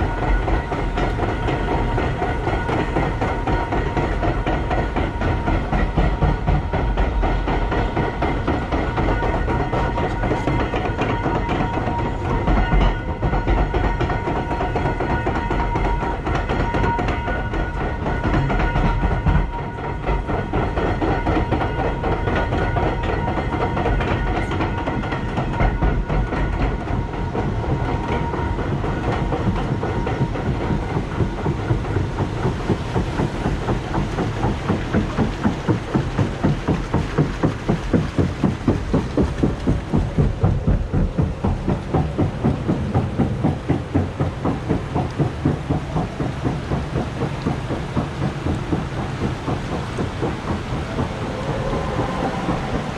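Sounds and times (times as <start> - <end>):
conveyor clacking over rollers: 0.0 - 52.9
steady high whine: 30.4 - 52.9.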